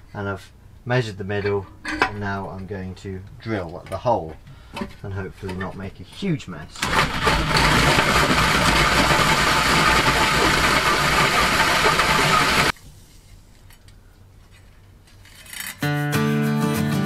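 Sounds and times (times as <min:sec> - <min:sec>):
drill cutting through metal: 0:06.8 - 0:12.7.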